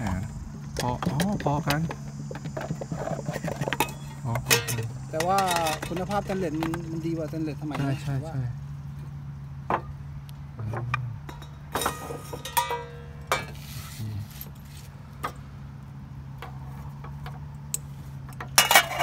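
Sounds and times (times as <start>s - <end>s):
steady low hum: 0.0s - 19.0s
metallic ringing: 0.8s - 6.6s, 11.2s - 13.6s
metal pan and lid clinking: 2.5s - 6.4s, 11.2s - 13.6s, 18.5s - 19.0s.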